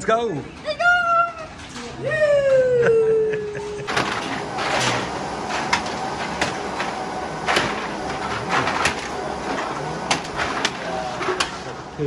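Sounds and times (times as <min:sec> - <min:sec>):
deposit machine running: 0:01.2 - 0:12.0
cans and bottles clattering: 0:03.9 - 0:11.8.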